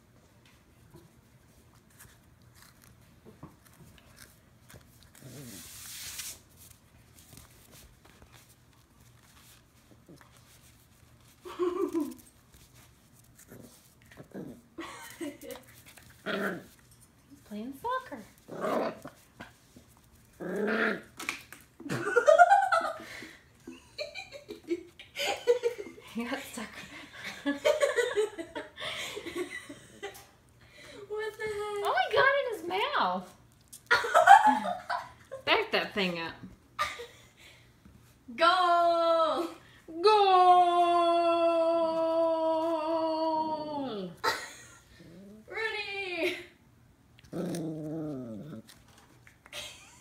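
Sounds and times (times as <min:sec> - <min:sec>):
puppy growling: 0:05.0 - 0:05.8, 0:13.4 - 0:14.8, 0:16.0 - 0:16.8, 0:18.2 - 0:19.6, 0:20.2 - 0:21.4, 0:44.9 - 0:45.5, 0:47.2 - 0:49.2.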